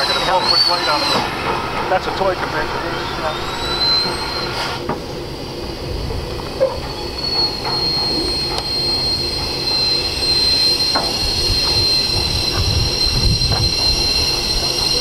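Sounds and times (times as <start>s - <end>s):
high-pitched wheel squeal: 0.0s - 1.6s, 2.8s - 4.8s, 6.6s - 15.0s.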